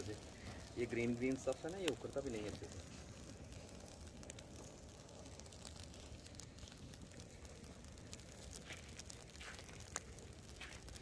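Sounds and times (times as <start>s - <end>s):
weeds crackling as they burn: 0.0s - 11.0s.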